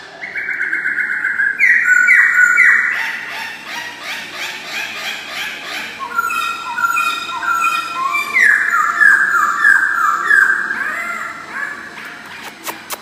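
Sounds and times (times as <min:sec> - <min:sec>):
bird singing whistled notes: 0:00.2 - 0:03.0, 0:06.0 - 0:10.7.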